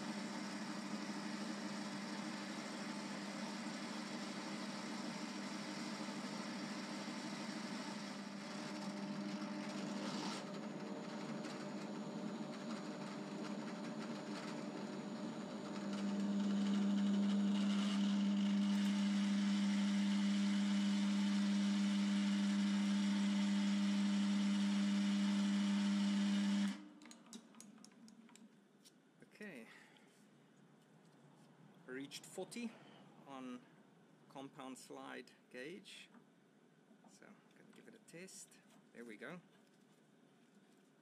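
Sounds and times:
lathe motor hum with gear whine: 0.0s - 26.8s.

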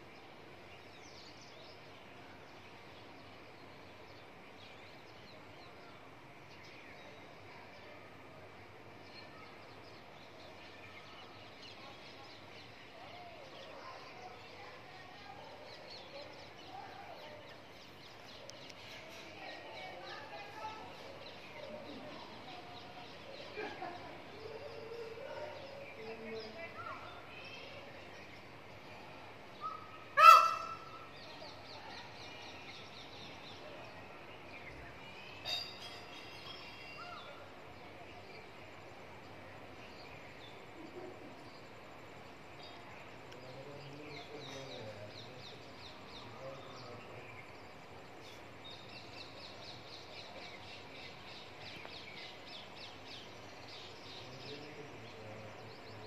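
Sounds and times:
small birds chirping: 0.0s - 56.0s
peafowl calling: 29.6s - 31.1s.

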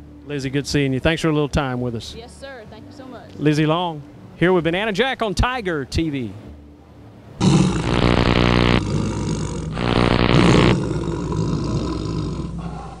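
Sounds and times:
tiger growling: 7.4s - 13.0s
tiger roaring: 7.4s - 13.0s.

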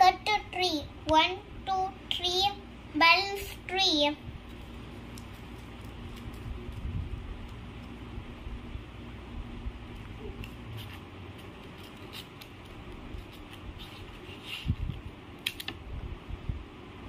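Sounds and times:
scissors snipping paper: 4.5s - 8.0s, 10.0s - 14.8s.

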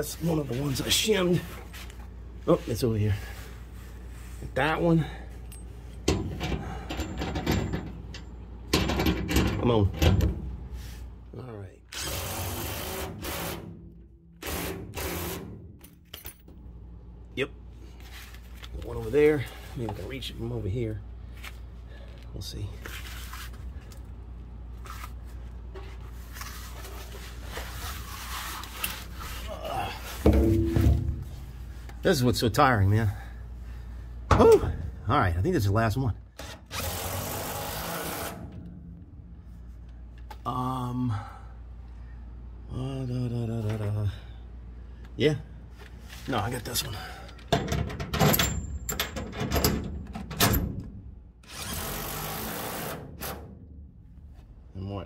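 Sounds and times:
rustling and scraping: 0.0s - 4.6s, 17.8s - 20.6s, 21.2s - 32.4s, 45.7s - 46.6s
steady low hum: 0.0s - 47.6s
metal socket and bolt clinking: 47.7s - 50.6s.

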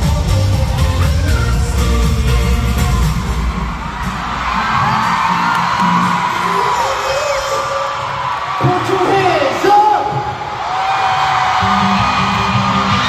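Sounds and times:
live pop music with bass beat: 0.0s - 8.2s
crowd screaming: 3.2s - 13.0s.

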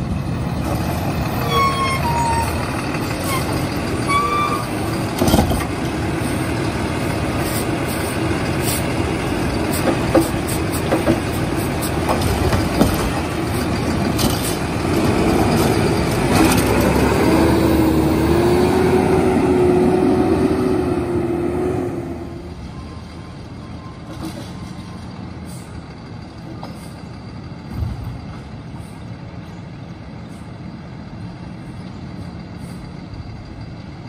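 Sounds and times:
diesel truck engine running: 0.0s - 24.0s.

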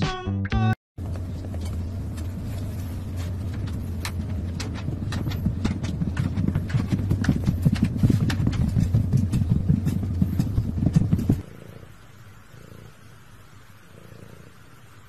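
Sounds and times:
paw thumps on wheel: 1.0s - 11.4s
exercise wheel rumbling: 1.0s - 11.8s.

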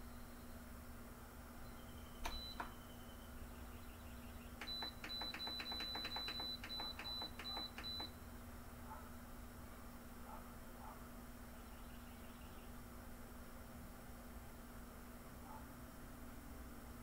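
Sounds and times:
button clicks with high beeps: 2.2s - 2.8s, 4.6s - 8.2s.

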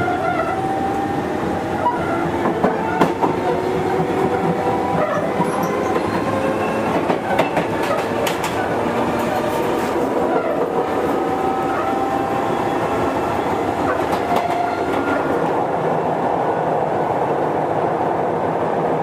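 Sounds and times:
train wheels clacking over rail joints: 2.2s - 11.2s, 13.9s - 15.5s.

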